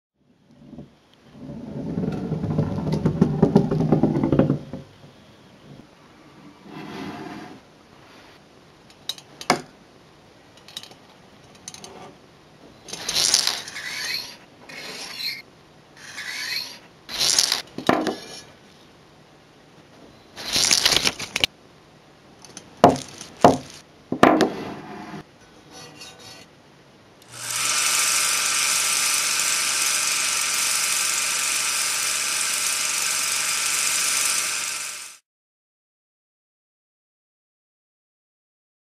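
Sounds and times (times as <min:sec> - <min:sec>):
scrapes rubs and clicks: 0:12.9 - 0:15.4, 0:16.0 - 0:17.6, 0:20.4 - 0:21.5, 0:23.0 - 0:23.8
loud whirring hiss: 0:27.3 - 0:35.2.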